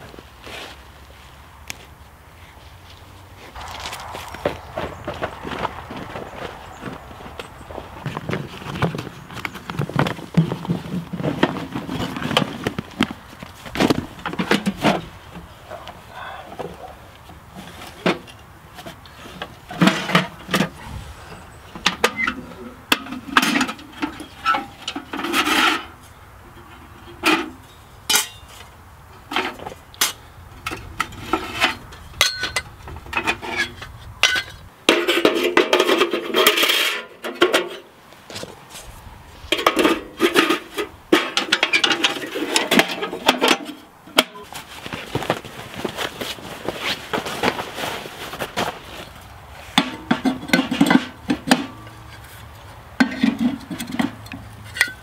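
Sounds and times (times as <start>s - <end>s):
metal clanks and scrapes: 17.6s - 38.9s, 39.5s - 45.1s, 46.5s - 55.0s.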